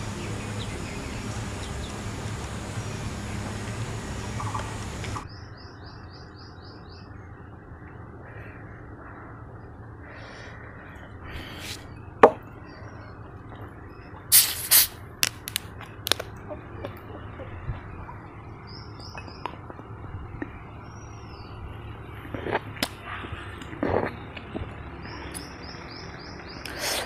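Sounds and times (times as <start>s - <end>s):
birds chirping: 0.0s - 14.4s, 15.9s - 27.0s
bottle opening hiss: 14.3s - 15.0s.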